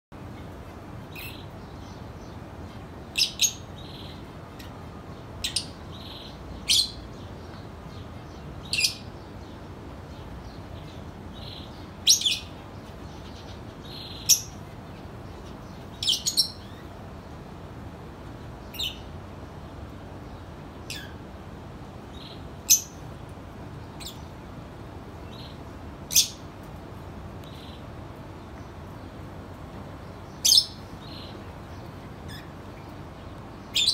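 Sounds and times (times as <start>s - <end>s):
finches calling: 33.5s - 33.9s.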